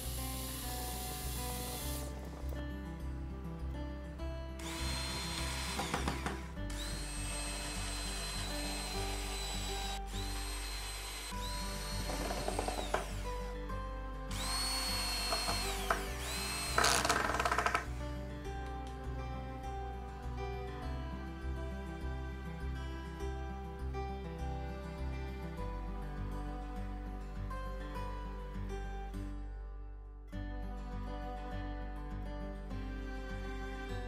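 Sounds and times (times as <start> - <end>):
electric drill whining: 0.0 - 2.1, 4.6 - 13.5, 14.3 - 18.0
background music: 0.0 - 34.0
drill clutch clicks: 15.2 - 17.9.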